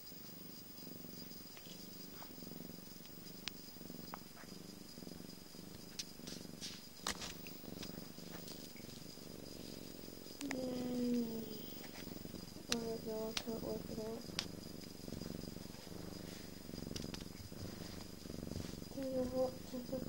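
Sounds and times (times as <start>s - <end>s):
cat purring: 0.0s - 20.0s
light clicks: 12.7s - 13.6s.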